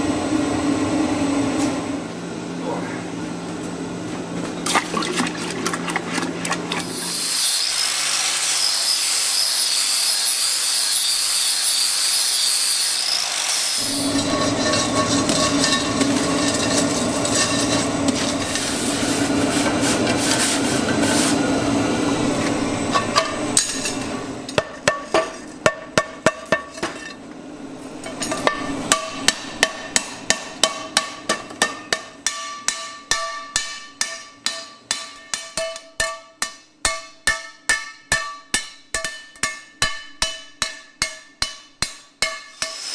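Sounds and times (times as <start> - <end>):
hot metal hissing in water: 6.7 - 22.8, 42.5 - 42.9
hammer striking metal on anvil: 22.9 - 27.2, 28.0 - 42.9.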